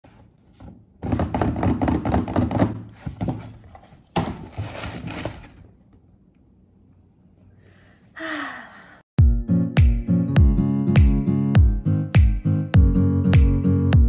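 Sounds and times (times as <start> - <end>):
cardboard box opening: 3.0 - 5.7.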